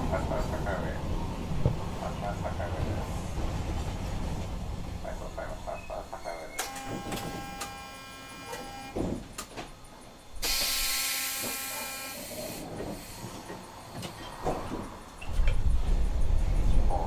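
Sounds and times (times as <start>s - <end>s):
tram electrical hum: 0.0s - 17.0s
air hissing: 10.4s - 13.5s.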